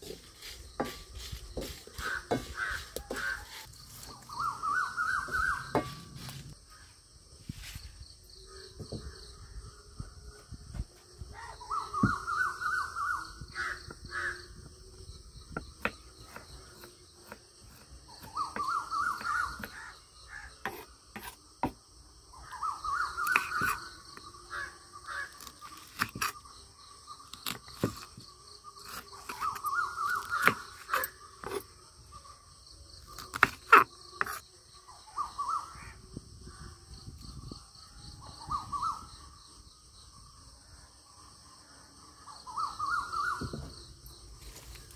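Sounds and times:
high insect buzz: 0:00.0 - 0:44.9
crows cawing: 0:02.0 - 0:03.6, 0:13.5 - 0:14.5, 0:24.5 - 0:25.4.

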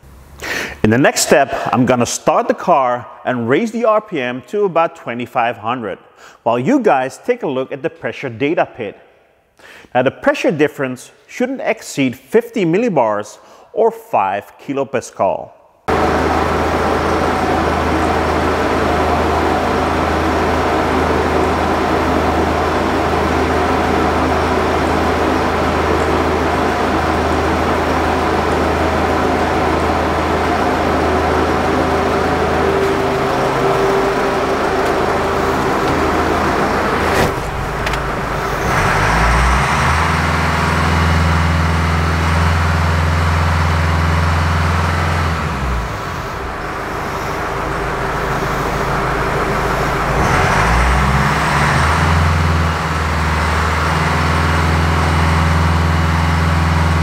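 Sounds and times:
diesel engine idling and revving: 0:15.9 - 0:57.0.

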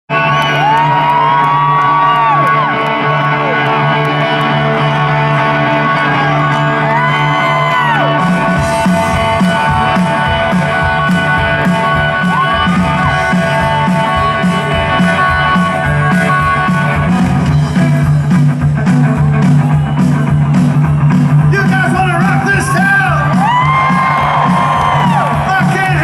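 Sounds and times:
crowd whooping: 0:00.1 - 0:13.9, 0:19.2 - 0:26.0
drums and bass beat: 0:00.1 - 0:26.0
electric guitar chords: 0:00.1 - 0:26.0.

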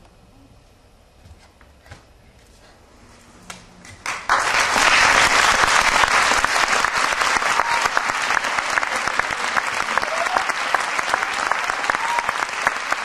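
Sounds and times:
audience applause: 0:03.9 - 0:13.0.

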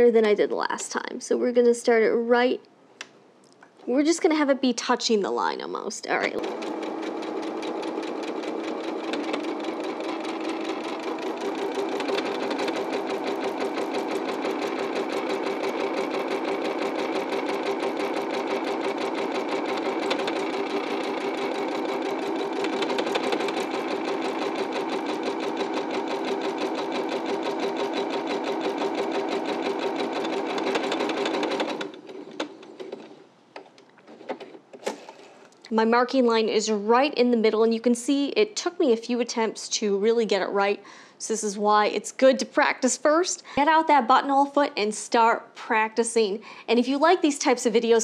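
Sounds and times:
sewing machine stitching: 0:06.2 - 0:33.2.

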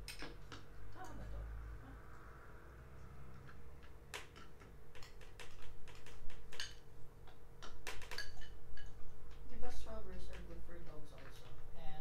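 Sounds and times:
cutlery clinking on bowls and trays: 0:07.6 - 0:09.0.

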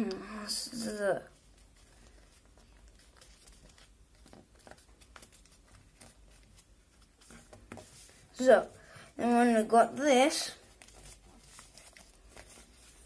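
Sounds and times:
paper being folded: 0:01.3 - 0:08.6, 0:10.4 - 0:13.0.

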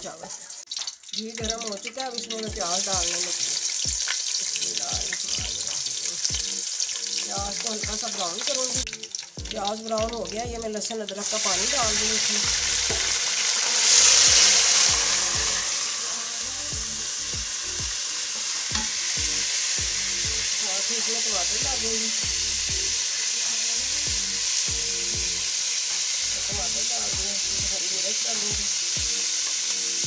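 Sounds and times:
onions sizzling in hot oil: 0:00.0 - 0:30.0.

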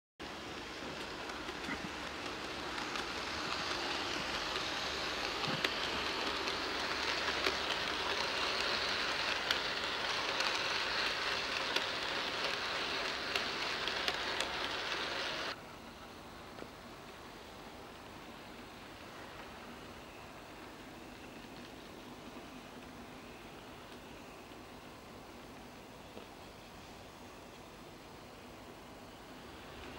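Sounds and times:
model train rolling hiss: 0:00.2 - 0:29.9
sharp clicks of track: 0:00.5 - 0:15.6.

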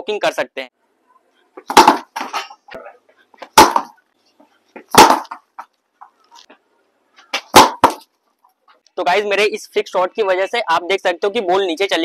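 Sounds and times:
cricket bat striking ball: 0:01.6 - 0:02.6, 0:03.4 - 0:04.0, 0:04.9 - 0:05.4, 0:07.3 - 0:08.1.

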